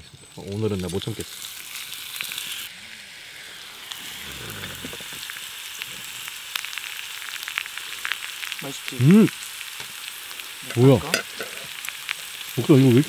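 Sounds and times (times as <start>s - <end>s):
pork sizzling in a skillet: 0.2s - 13.0s
fat popping and crackling: 3.9s - 12.8s.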